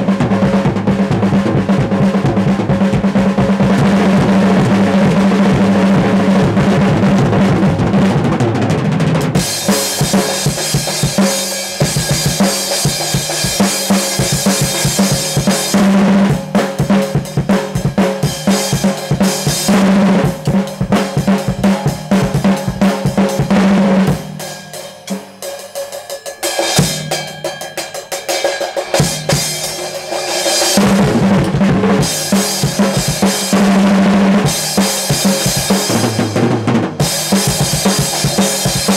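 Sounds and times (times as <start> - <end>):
drum kit solo: 0.0 - 38.9
cymbals washing: 18.2 - 33.8.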